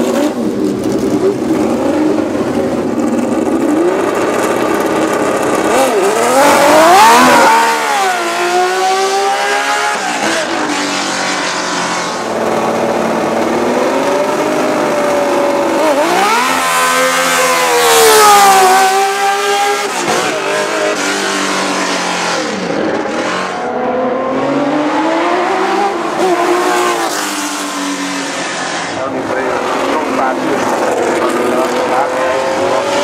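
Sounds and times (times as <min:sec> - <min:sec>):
racing car engine revving: 0:00.0 - 0:33.0.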